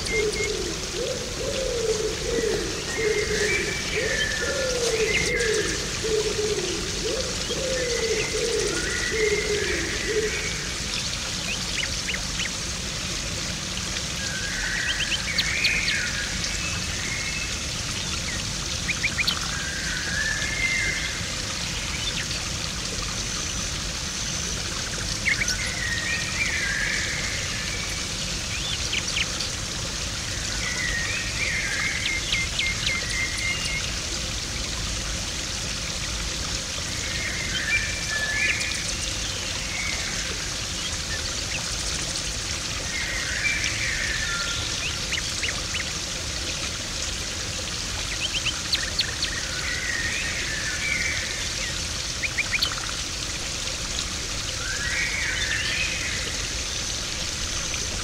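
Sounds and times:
bird calling: 0.0 - 10.6
pond water splashing and trickling: 0.0 - 58.0.

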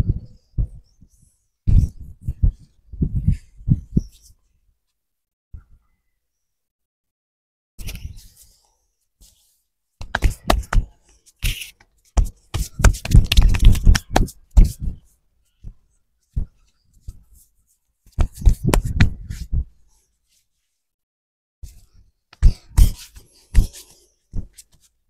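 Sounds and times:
hands slapping and chopping skin: 10.0 - 11.6, 12.2 - 14.7, 18.2 - 19.2.

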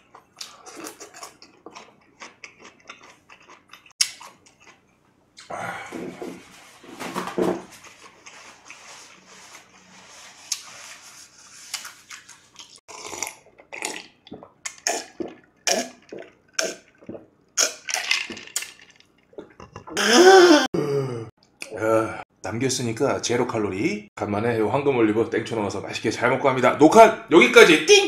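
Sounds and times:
crunchy chewing: 0.0 - 4.8
voiced sigh: 5.4 - 6.1, 20.0 - 21.3
gulping drink: 12.9 - 17.9, 19.4 - 21.1.

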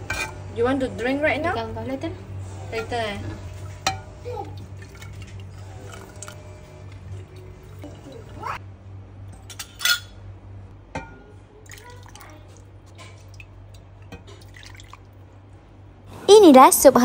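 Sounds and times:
utensils clinking dishes: 0.0 - 0.4, 9.3 - 10.2
soup pouring into bowl: 4.5 - 8.4, 11.6 - 15.2.

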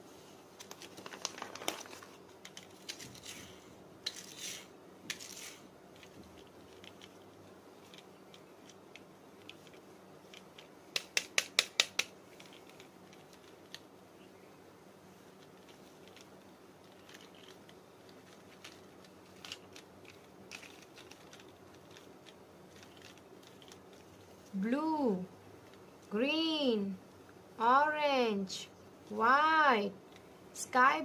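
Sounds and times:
plastic toy cars clicking: 7.8 - 13.8, 15.4 - 24.0.

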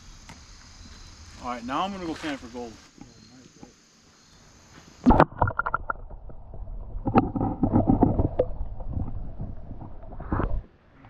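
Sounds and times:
water sloshing and splashing: 1.8 - 2.9, 5.1 - 10.7.

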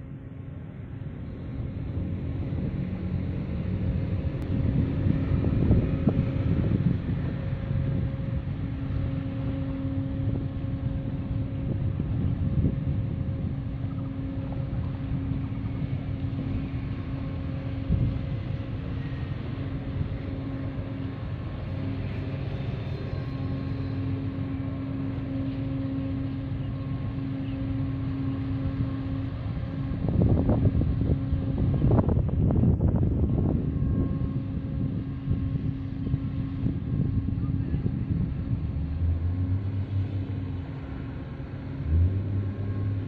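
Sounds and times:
ship engine drone: 0.0 - 43.0
wind gusting on microphone: 0.0 - 43.0.

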